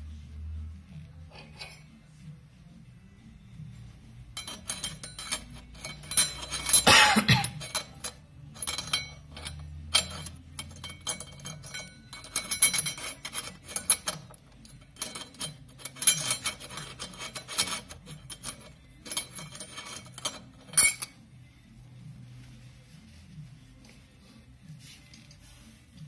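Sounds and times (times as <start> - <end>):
metal clutch parts clicking and scraping: 1.0 - 2.2, 3.8 - 21.2.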